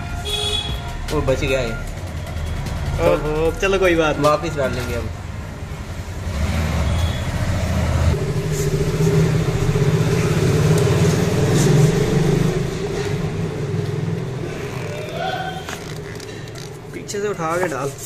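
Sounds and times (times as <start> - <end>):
vehicle engine running: 7.6 - 17.0.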